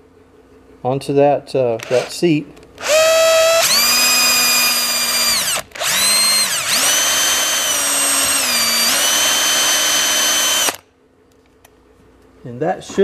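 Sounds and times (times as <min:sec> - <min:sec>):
electric drill motor whine: 0:01.8 - 0:02.1, 0:02.8 - 0:10.8.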